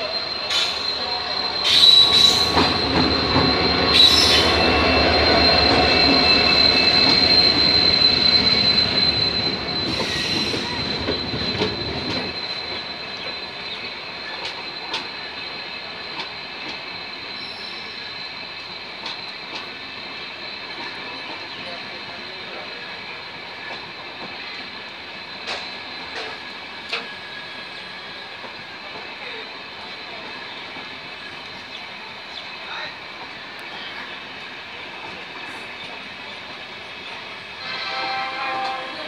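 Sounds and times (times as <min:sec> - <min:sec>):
train rumble: 0:00.0 - 0:39.0
train wheels squealing: 0:00.0 - 0:39.0.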